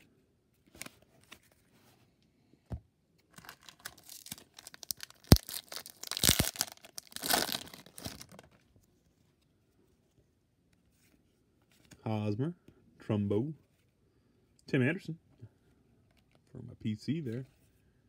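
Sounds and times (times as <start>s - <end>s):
foil wrapper tearing and crinkling: 3.4s - 8.4s.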